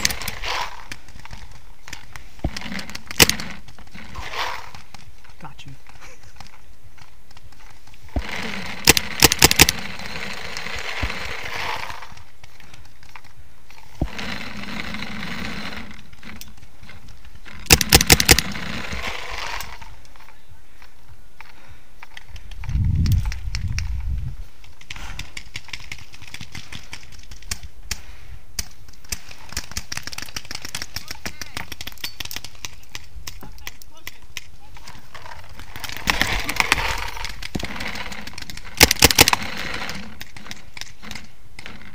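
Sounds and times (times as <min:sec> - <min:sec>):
paintball marker firing bursts: 0:02.4 - 0:04.8, 0:08.1 - 0:12.2, 0:17.6 - 0:19.8, 0:35.6 - 0:40.9.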